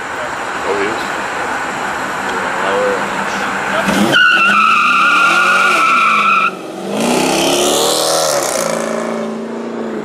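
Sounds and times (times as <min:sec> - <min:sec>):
car engine revving: 0:01.0 - 0:10.0
tyres squealing: 0:03.0 - 0:06.6.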